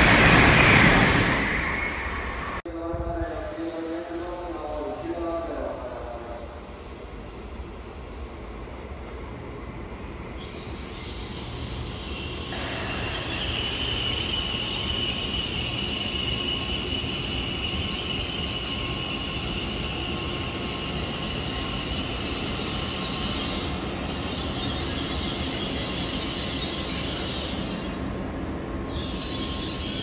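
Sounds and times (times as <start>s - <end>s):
brake squeal: 10.3s - 19.5s
train wheels rumbling on rails: 10.3s - 30.0s.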